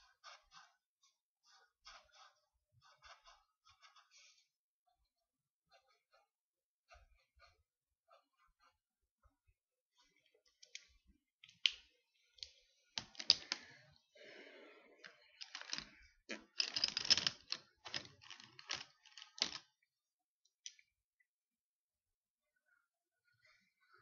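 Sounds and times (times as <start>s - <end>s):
small plastic things clicking: 10.6s - 13.8s, 15.0s - 19.8s.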